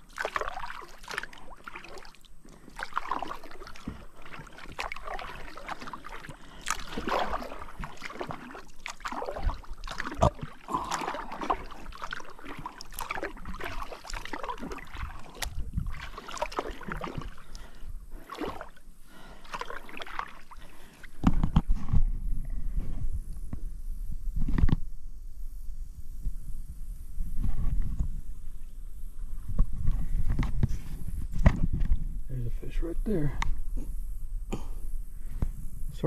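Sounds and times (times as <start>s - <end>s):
water splashing around kayak: 0.0s - 23.4s.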